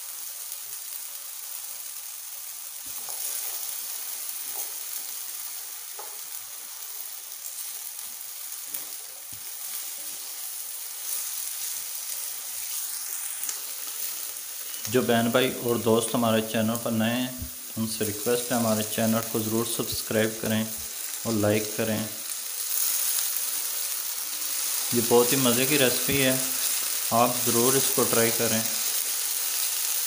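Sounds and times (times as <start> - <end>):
potatoes sizzling in oil: 0.0 - 30.0
spatula tapping a pan: 5.9 - 6.2.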